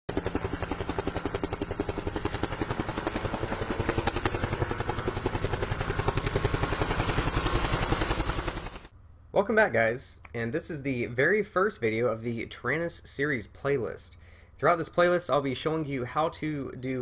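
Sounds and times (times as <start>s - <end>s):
helicopter rotor chopping: 0.1s - 8.9s.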